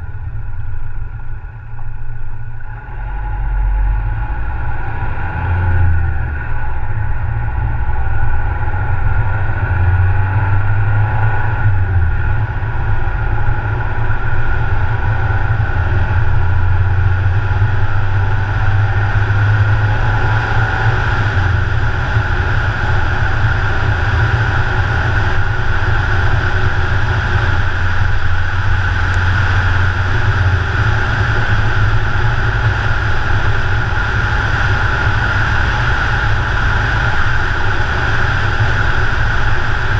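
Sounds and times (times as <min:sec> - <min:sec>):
car road and wind rumble: 0:00.0 - 0:39.9.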